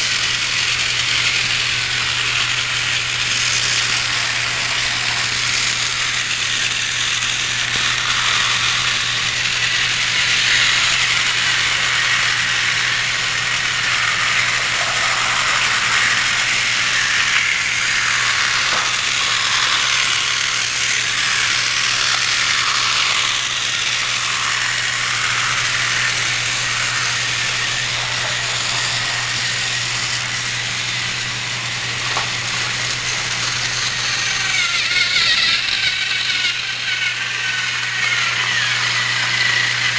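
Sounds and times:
steady low hum: 0:00.0 - 0:39.9
toy train motor whirring: 0:00.0 - 0:39.9.

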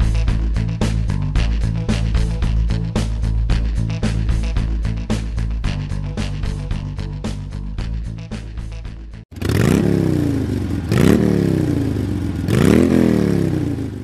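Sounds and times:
rock music: 0:00.0 - 0:09.2
motorcycle engine revving: 0:09.3 - 0:14.0.

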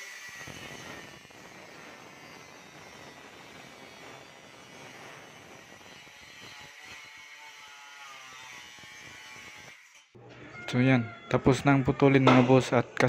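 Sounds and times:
angle grinder cutting steel: 0:00.0 - 0:10.2.

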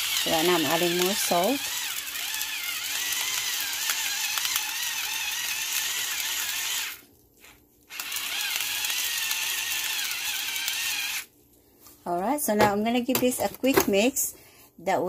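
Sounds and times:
salt grinder grinding: 0:00.0 - 0:11.3.

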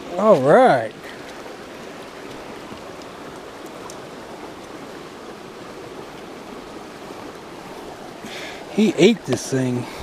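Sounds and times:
creek running over rocks: 0:00.0 - 0:10.0
faint ticks: 0:02.2 - 0:04.0.

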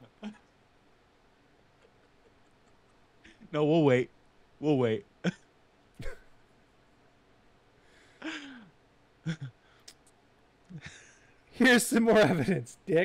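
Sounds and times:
faint clicks: 0:09.8 - 0:10.8.

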